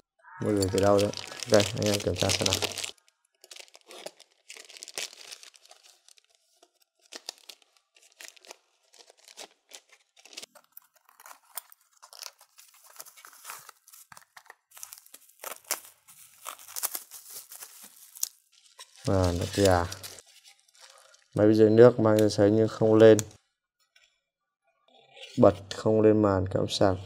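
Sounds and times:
plastic packaging tearing and crinkling: 0.4s - 21.4s.

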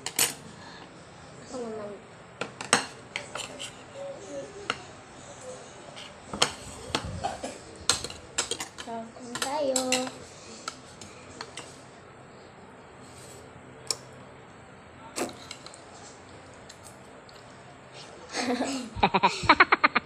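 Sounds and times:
spoons clinking on ceramic plates: 7.9s - 10.2s
girl's voice: 8.9s - 10.2s.

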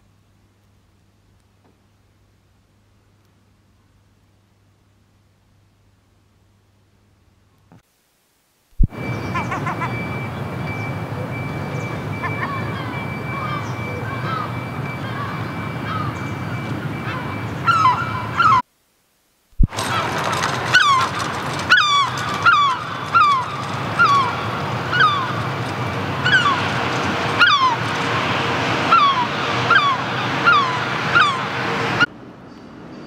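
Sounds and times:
gull calling: 8.9s - 18.6s, 19.8s - 32.1s.

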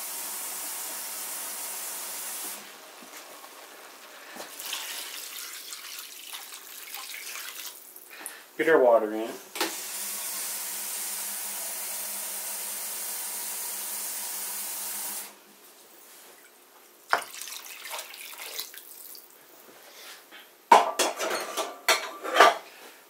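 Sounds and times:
water poured from a pot: 4.4s - 8.1s, 17.1s - 19.4s
tap running into a pot: 17.1s - 18.6s
cookware clattering: 20.7s - 22.6s.

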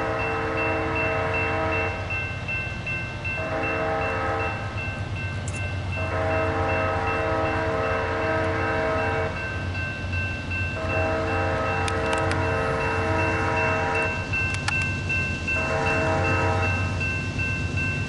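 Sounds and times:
locomotive air horn chord: 0.0s - 2.1s, 3.4s - 4.8s, 5.9s - 9.4s, 10.8s - 14.2s, 15.6s - 16.9s
locomotive bell ringing: 0.0s - 18.0s
low rumble of train: 0.0s - 18.0s.

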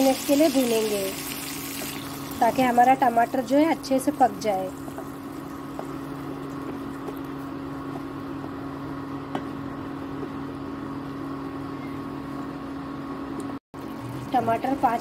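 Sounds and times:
tomato sizzling in oil: 0.0s - 7.1s
induction cooktop humming: 0.0s - 15.0s.

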